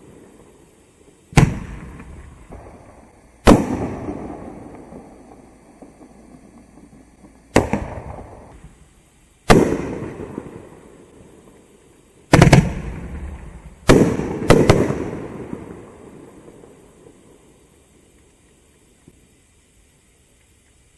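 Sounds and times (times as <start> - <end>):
firework bangs echoing: 1.3 - 8.8, 9.4 - 11.0, 12.3 - 17.2.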